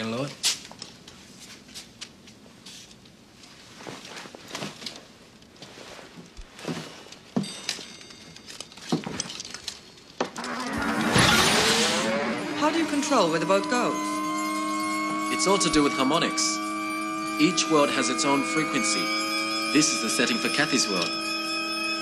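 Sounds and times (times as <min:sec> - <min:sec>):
high glassy ring: 0:10.3 - 0:22.0.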